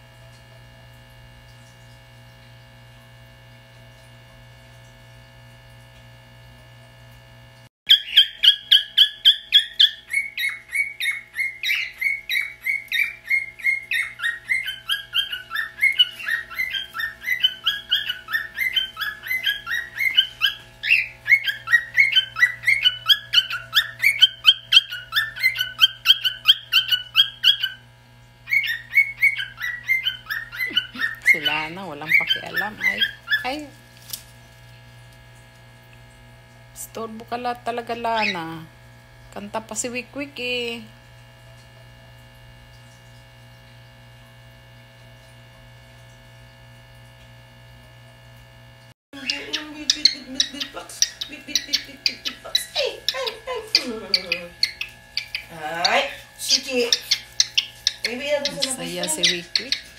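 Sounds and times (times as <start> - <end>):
steady electrical hum: 0.0 - 59.9
cockatiel chirping and whistling: 7.9 - 27.8, 28.5 - 33.6, 49.2 - 59.9.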